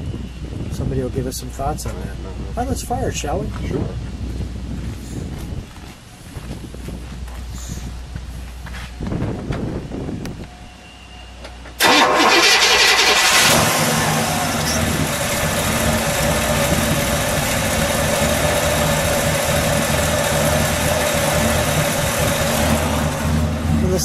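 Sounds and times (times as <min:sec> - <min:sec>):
car engine starting and idling: 0:11.8 - 0:24.0.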